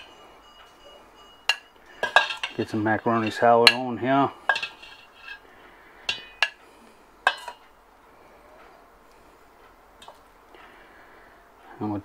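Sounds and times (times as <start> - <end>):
metal spoon clinking on steel bowl: 0.0 - 5.4, 6.1 - 6.6, 7.2 - 7.7.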